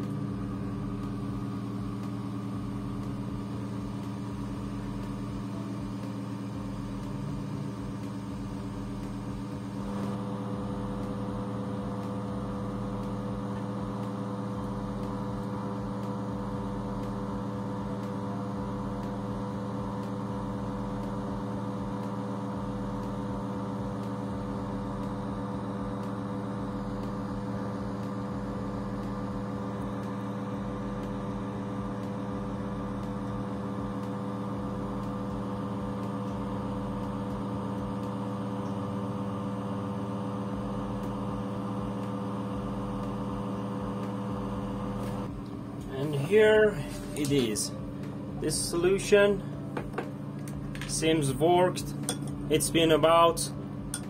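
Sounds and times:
steady machine hum: 0.0 - 54.0.

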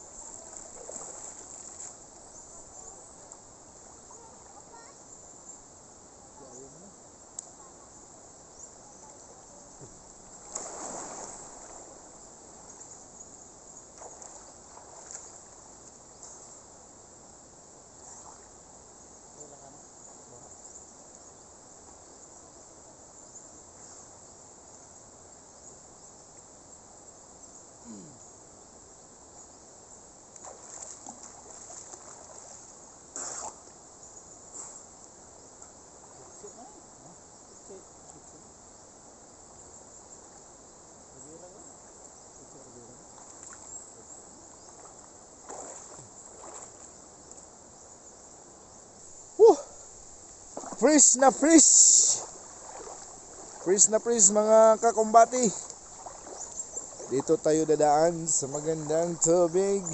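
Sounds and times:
water splashing: 0.0 - 3.3, 10.2 - 12.9, 13.9 - 15.7, 30.3 - 33.7, 43.0 - 43.9, 44.7 - 47.0, 49.2 - 59.9
high-pitched insect chorus: 0.0 - 59.9.

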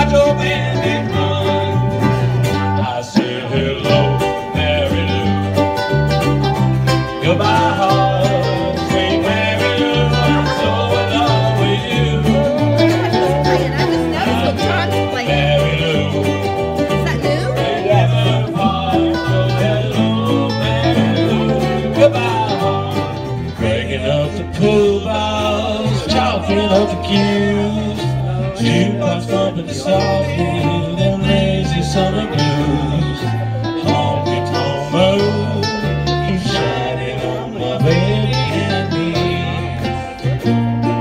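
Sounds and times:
acoustic guitar: 0.0 - 41.0
bass line: 0.0 - 41.0
strummed ukuleles: 0.0 - 41.0.

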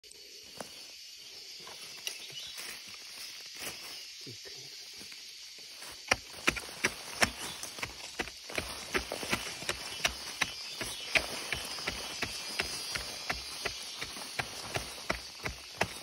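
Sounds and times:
steady high forest hiss: 0.0 - 16.0
digging tool chopping into soil: 5.9 - 16.0.

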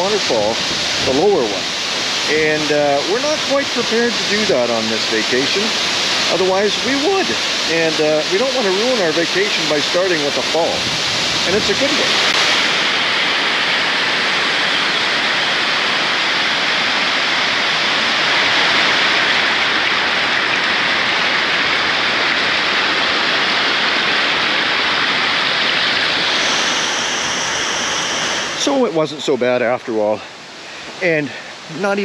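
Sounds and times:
water rushing over rocks: 0.0 - 32.0
bright hiss: 25.6 - 32.0.

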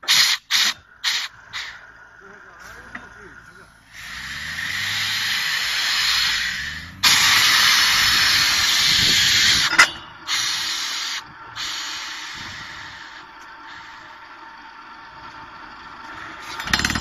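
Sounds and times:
compressed air hissing: 0.0 - 1.9, 3.9 - 14.2.

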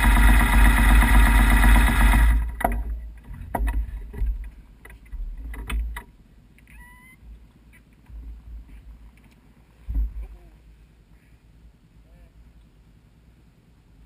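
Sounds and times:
motorcycle engine running: 0.0 - 2.8
knocks and clunks: 2.4 - 6.1, 9.8 - 10.4
brief squeak: 6.7 - 7.2.

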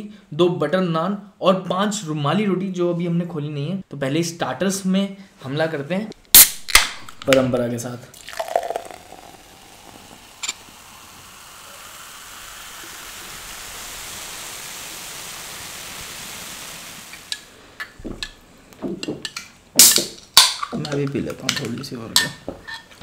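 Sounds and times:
cola fizzing as poured into glass: 8.1 - 17.6.

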